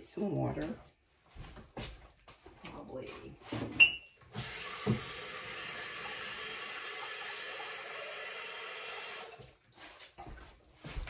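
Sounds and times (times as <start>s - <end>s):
water running from tap: 4.3s - 10.0s.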